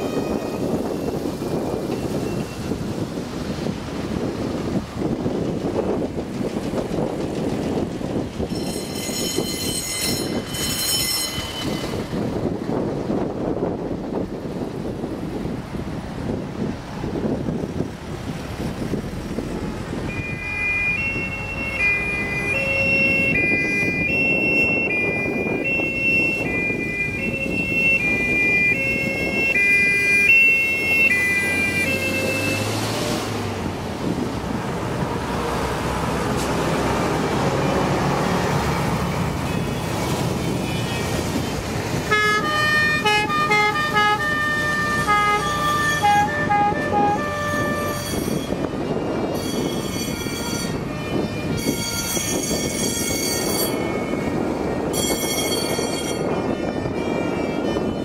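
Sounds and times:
two-tone sirens: 0.0s - 3.0s, 20.0s - 33.5s, 37.0s - 58.0s
truck engine and tyre noise: 0.0s - 58.0s.

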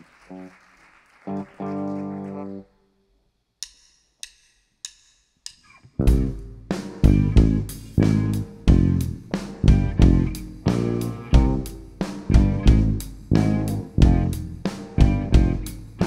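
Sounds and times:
stray electric guitar notes: 1.3s - 2.6s, 6.0s - 16.0s
drumstick clicks: 3.6s - 5.9s
rock band playing: 6.0s - 16.0s.

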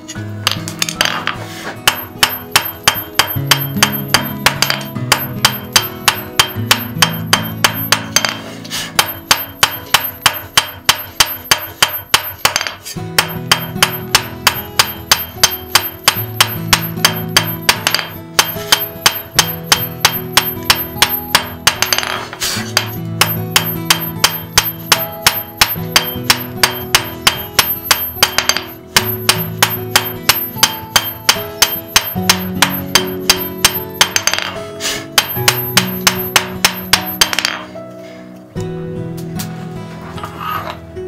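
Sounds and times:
hammer ringing on anvil: 1.9s - 34.6s, 35.2s - 37.7s.

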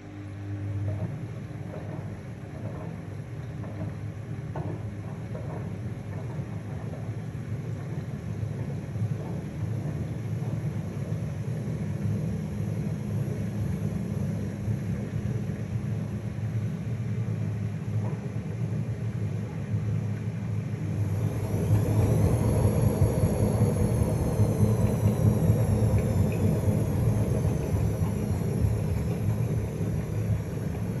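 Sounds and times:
washing machine rumbling: 0.0s - 31.0s
motor whine: 20.9s - 31.0s.

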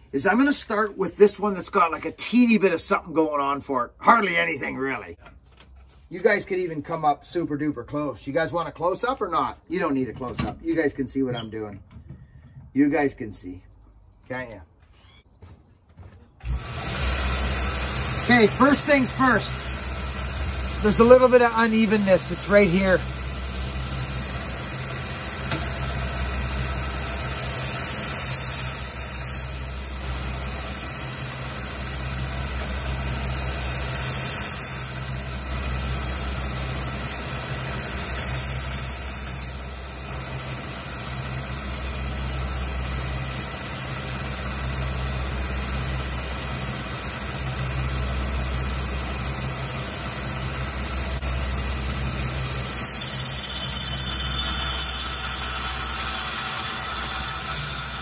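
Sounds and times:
belt sander motor hum: 16.4s - 58.0s
steel grinding hiss: 16.8s - 42.0s, 51.2s - 58.0s.

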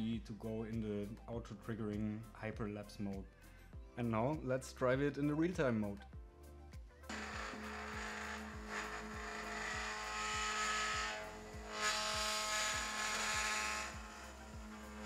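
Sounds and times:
buzzing rattle: 7.1s - 15.0s
stepper motor whine: 7.1s - 15.0s.

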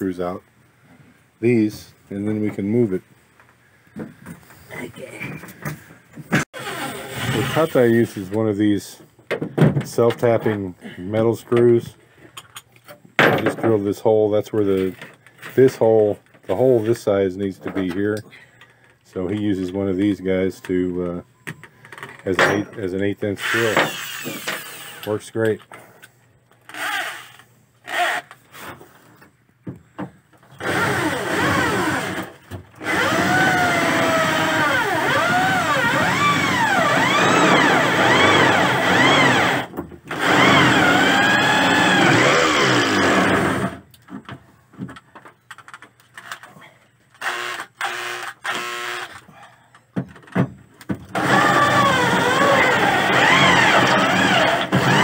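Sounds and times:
electric drill boring into metal: 23.4s - 25.1s, 30.6s - 32.2s, 32.8s - 43.8s, 47.2s - 49.1s, 51.2s - 55.0s.

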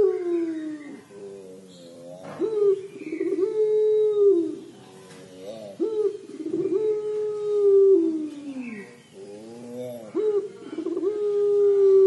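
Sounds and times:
dove cooing: 0.0s - 12.0s.

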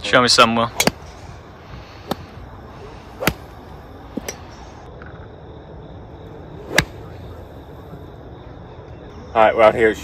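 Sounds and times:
golf clubs striking balls: 0.7s - 2.4s, 3.0s - 4.6s, 6.7s - 7.1s.

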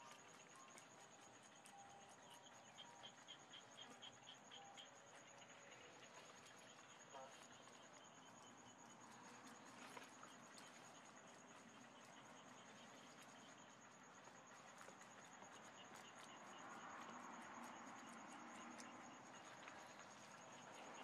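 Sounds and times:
insect pulsing trill: 0.0s - 21.0s
rabbits chewing leafy greens: 5.1s - 21.0s.

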